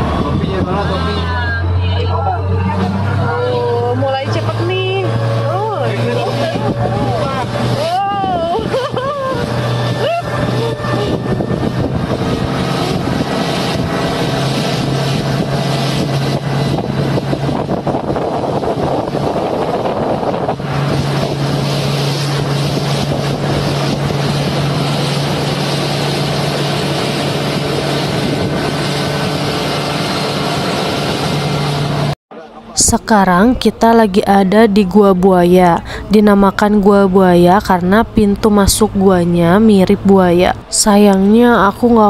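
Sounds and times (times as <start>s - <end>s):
wind on microphone: 0.0s - 32.2s
motorboat engine running: 0.0s - 42.0s
water rushing along hull: 0.0s - 42.0s.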